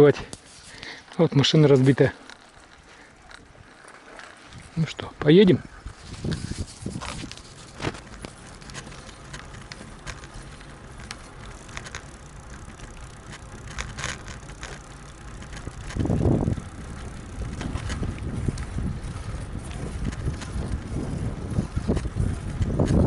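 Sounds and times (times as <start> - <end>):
bicycle tyre rumble on asphalt: 0.0 - 23.0
bike clicks and rattles: 0.0 - 23.0
wind buffeting microphone: 5.4 - 23.0.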